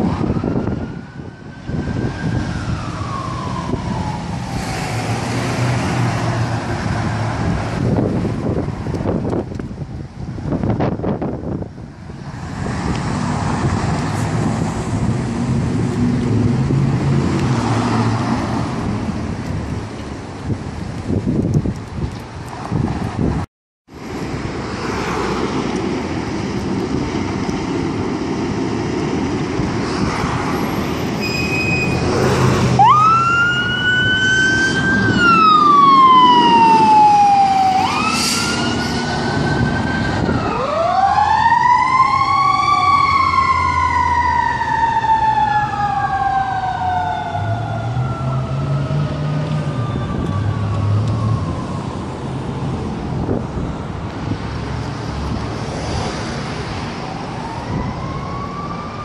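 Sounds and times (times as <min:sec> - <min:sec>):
mechanical siren wailing: 0:00.0 - 0:04.9, 0:31.2 - 0:52.4, 0:57.0 - 0:59.0.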